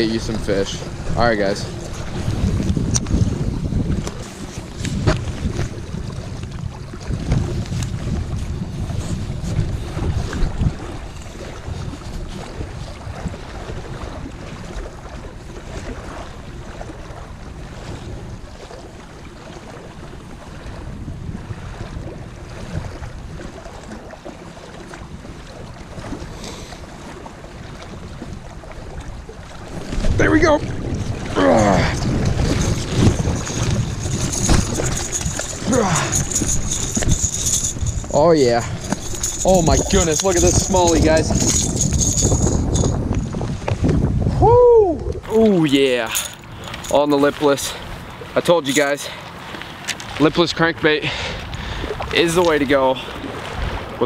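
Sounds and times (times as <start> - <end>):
small waves lapping on rocks: 0.0 - 43.9, 45.1 - 54.0
wind buffeting microphone: 0.0 - 54.0.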